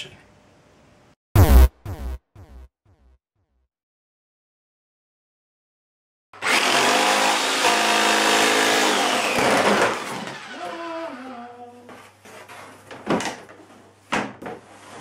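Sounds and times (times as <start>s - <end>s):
jigsaw cutting fibreboard: 6.4s - 10.8s.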